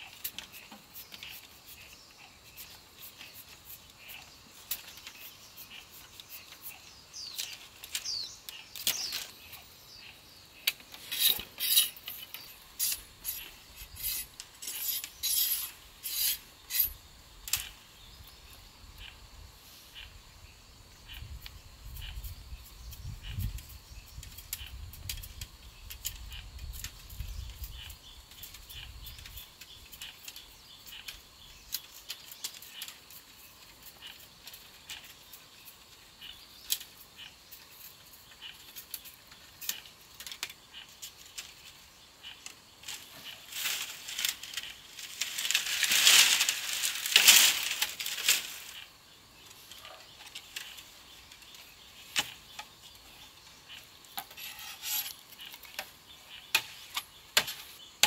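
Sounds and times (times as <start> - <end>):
bamboo strips snapping and crackling: 7.3 - 9.4, 42.4 - 48.9.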